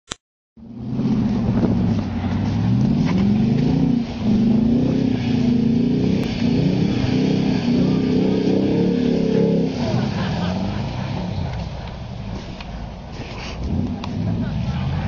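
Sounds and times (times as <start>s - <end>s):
car engine revving hard: 0.7s - 12.4s.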